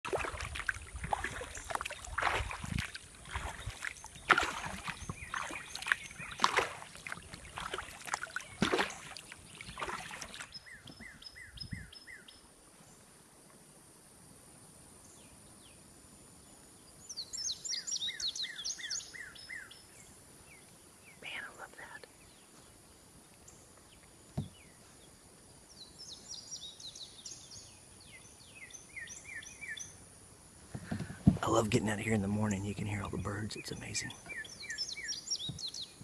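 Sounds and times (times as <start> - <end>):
kayak paddle splashing water: 0.0 - 11.2, 30.6 - 36.0.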